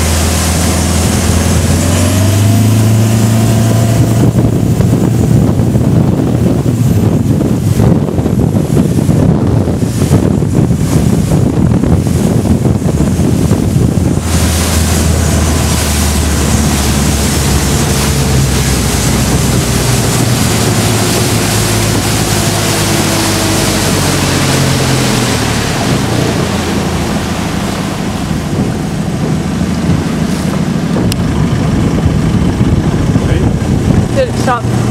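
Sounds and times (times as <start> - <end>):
outboard engine drone: 0.0 - 34.9
water rushing off hull: 0.0 - 34.9
wind buffeting microphone: 0.0 - 34.9.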